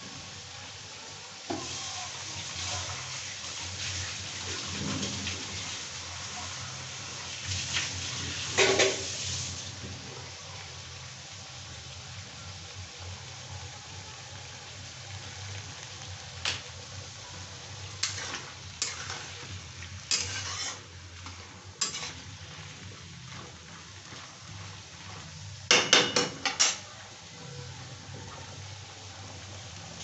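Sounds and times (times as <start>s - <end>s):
faint sizzle: 0.0s - 30.0s
metal spatula scraping a pan: 17.9s - 26.8s.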